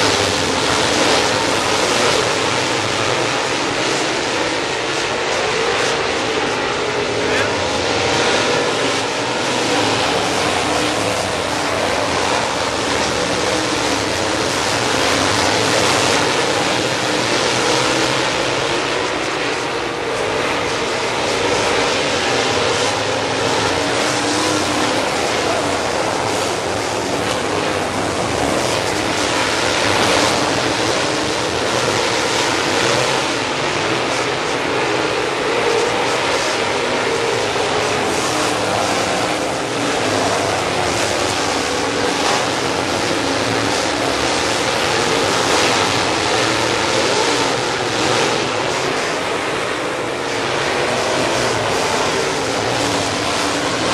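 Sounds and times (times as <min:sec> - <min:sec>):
race car engines roaring: 0:00.0 - 0:53.9.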